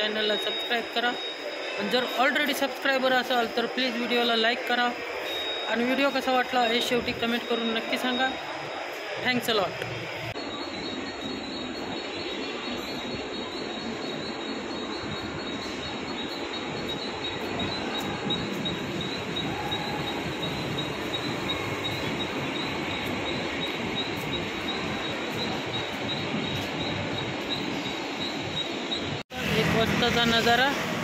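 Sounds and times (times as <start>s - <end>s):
train wheels rumbling: 13.0s - 31.0s.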